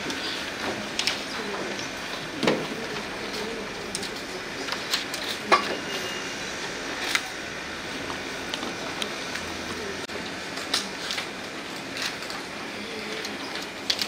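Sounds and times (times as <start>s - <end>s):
murmur of voices: 0.0s - 14.0s.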